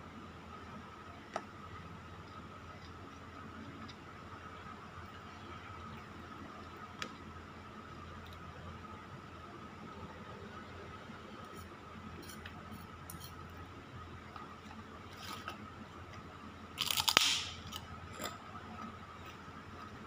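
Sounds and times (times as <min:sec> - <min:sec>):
loud crackle with sharp click: 0:16.8 - 0:17.8.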